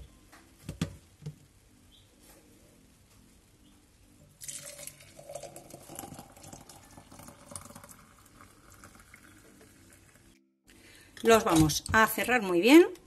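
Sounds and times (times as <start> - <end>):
liquid pouring into a glass jar: 4.4 - 10.4.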